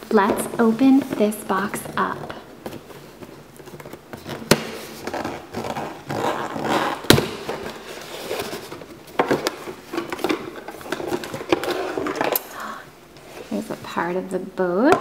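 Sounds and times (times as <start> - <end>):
cardboard rubbing and scraping: 4.1 - 8.9
cardboard flaps snapping: 7.0 - 7.6.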